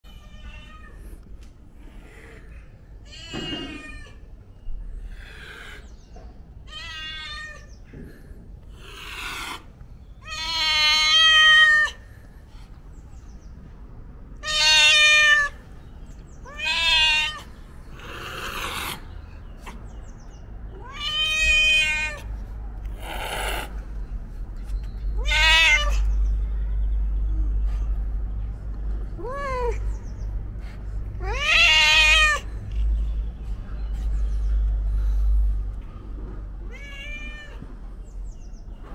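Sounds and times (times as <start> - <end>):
cat meowing loudly: 0.1 - 1.0, 3.0 - 4.2, 6.7 - 7.7, 10.2 - 12.0, 14.4 - 15.6, 16.4 - 19.0, 20.7 - 22.3, 25.2 - 26.2, 31.2 - 32.5, 36.6 - 37.7.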